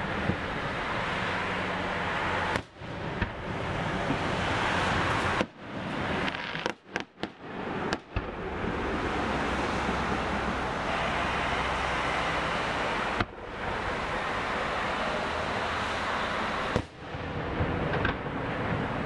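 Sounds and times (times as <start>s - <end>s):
steady rushing noise: 0.0s - 19.0s
fireworks bursting bangs: 4.6s - 8.5s, 16.4s - 18.9s.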